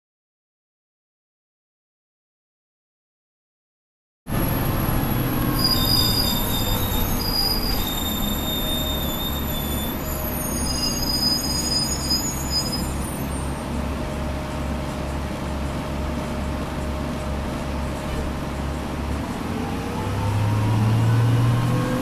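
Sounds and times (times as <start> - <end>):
high-pitched squealing tones: 4.3 - 13.6
bus engine pulsing rumble: 4.3 - 22.0.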